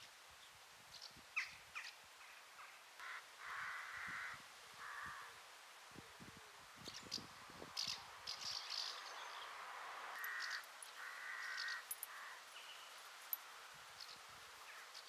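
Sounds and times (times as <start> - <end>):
crow cawing: 3.0 - 5.4, 10.2 - 12.4
small birds chirping: 6.8 - 9.6, 10.2 - 15.0.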